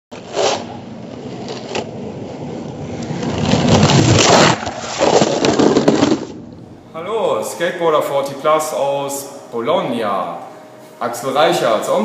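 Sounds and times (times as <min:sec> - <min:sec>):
skateboard wheels rolling on concrete: 0:00.1 - 0:06.6
skateboard wheels knocking on joints: 0:00.2 - 0:06.5.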